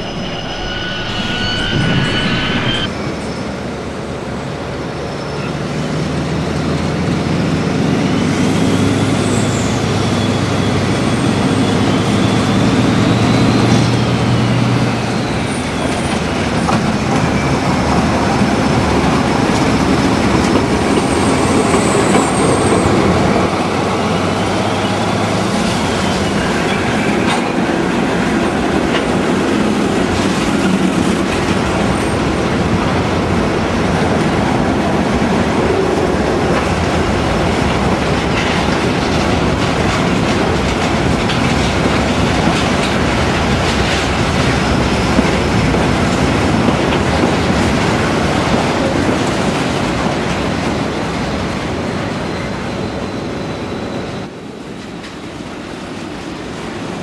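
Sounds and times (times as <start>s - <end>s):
faint high whine: 0.0s - 3.6s.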